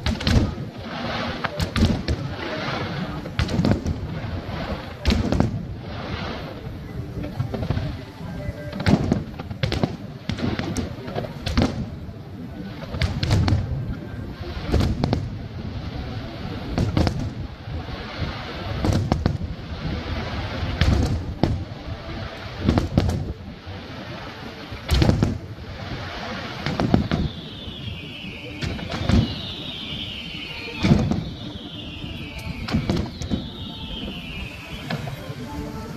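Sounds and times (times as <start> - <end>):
firework crackling: 0.0 - 35.9
falling high tone: 27.6 - 35.9
firework shells bursting: 28.6 - 35.2.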